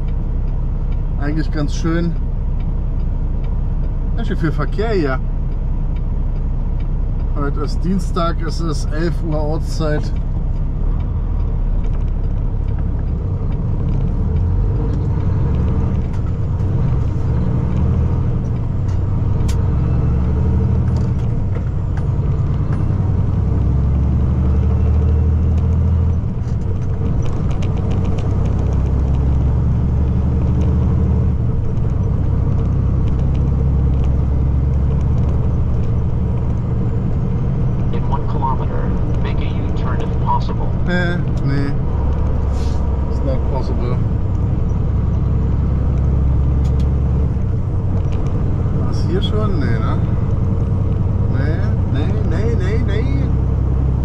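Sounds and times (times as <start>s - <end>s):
road noise inside cab: 0.0s - 54.0s
truck diesel engine drone: 0.0s - 54.0s.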